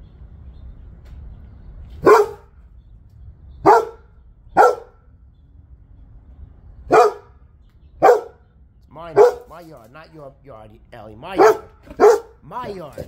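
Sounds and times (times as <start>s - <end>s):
dog barking: 2.0s - 2.5s, 3.6s - 5.0s, 6.9s - 7.4s, 8.0s - 8.4s, 9.1s - 9.5s, 11.3s - 12.4s.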